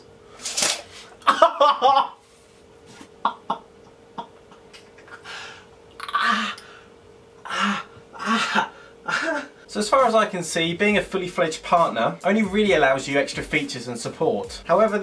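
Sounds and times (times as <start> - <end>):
man coughing: 7.5 - 9.6.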